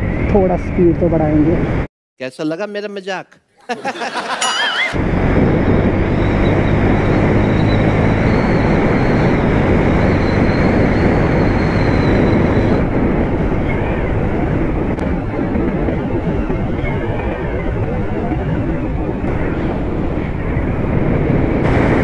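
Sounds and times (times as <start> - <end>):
wind rush: 4.6 - 22.0.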